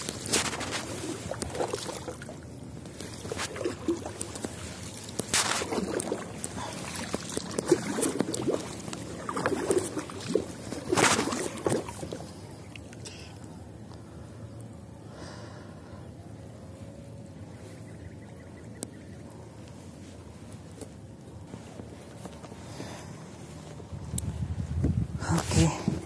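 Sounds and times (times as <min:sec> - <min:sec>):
paddle splashing through water: 0:00.0 - 0:13.0
water dripping and sloshing: 0:00.0 - 0:13.5.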